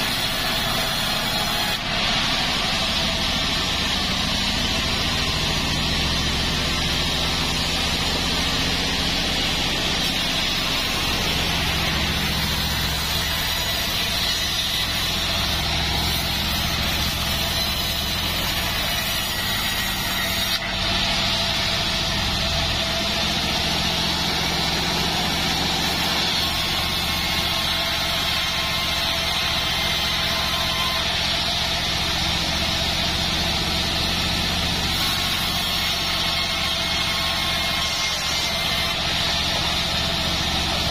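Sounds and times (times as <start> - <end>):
band saw cutting log: 0.0 - 40.9.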